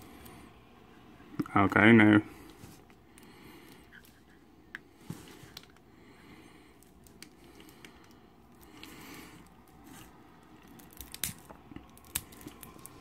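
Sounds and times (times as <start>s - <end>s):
foil wrapper tearing: 10.7s - 13.0s.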